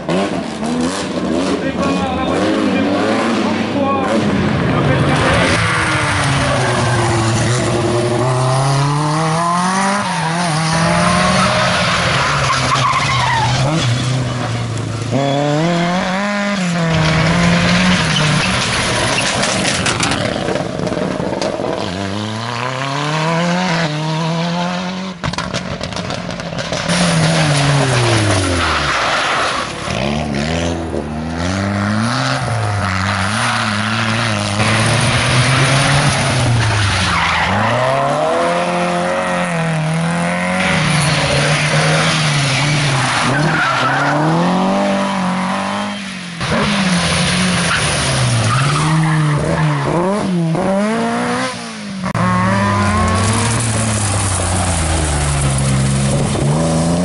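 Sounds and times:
rally car engines revving: 0:00.0 - 0:57.0
tyres sliding on tarmac: 0:09.9 - 0:15.2, 0:16.8 - 0:21.8, 0:25.6 - 0:30.3, 0:32.4 - 0:39.0, 0:40.6 - 0:50.0, 0:52.1 - 0:57.0.

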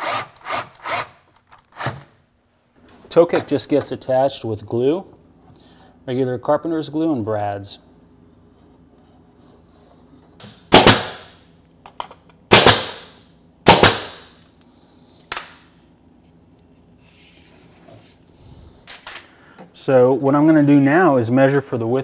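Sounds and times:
pneumatic nailer shots: 0:00.0 - 0:02.2, 0:10.4 - 0:11.5, 0:12.5 - 0:14.4.

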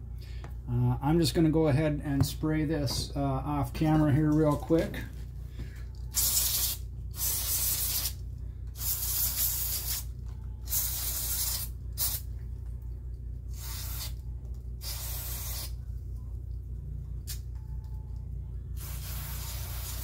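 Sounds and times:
steady low hum: 0:00.0 - 0:20.0
aerosol spray hissing: 0:06.1 - 0:08.2, 0:08.8 - 0:10.1, 0:10.7 - 0:12.2, 0:13.5 - 0:14.2, 0:14.8 - 0:15.8, 0:18.8 - 0:20.0.

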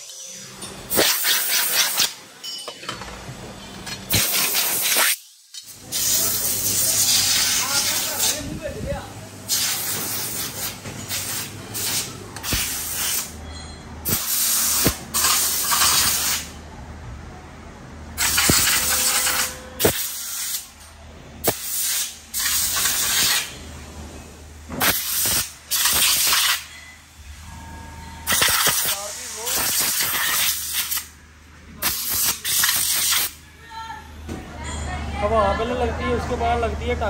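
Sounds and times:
air blow gun hissing: 0:09.5 - 0:13.4, 0:14.0 - 0:16.6, 0:18.2 - 0:20.6, 0:21.4 - 0:23.5, 0:24.8 - 0:26.6, 0:28.3 - 0:31.1.

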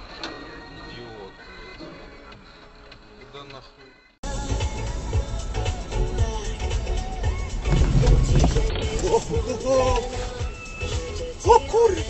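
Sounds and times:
music with steady beat: 0:04.2 - 0:12.0
car driving road noise: 0:04.3 - 0:11.4.

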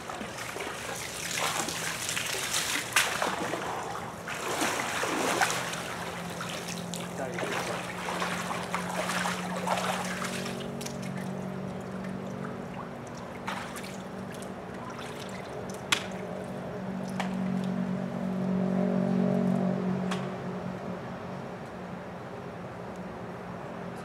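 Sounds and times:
water trickling and splashing: 0:00.0 - 0:18.6
steady low hum: 0:00.0 - 0:24.0.

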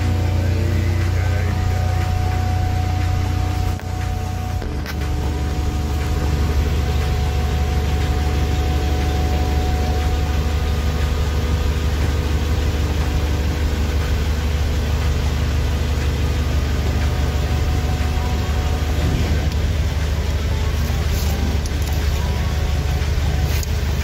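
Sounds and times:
faint high steady tone: 0:00.0 - 0:13.2
diesel engine humming: 0:00.0 - 0:24.0.

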